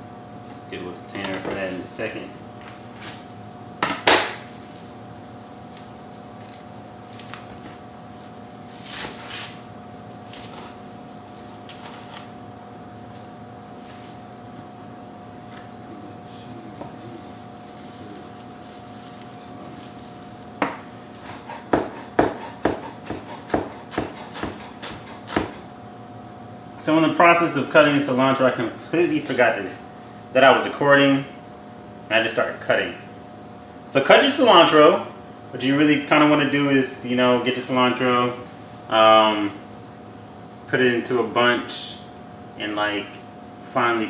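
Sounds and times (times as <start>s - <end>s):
knife cutting herbs on board: 20.6s - 25.6s.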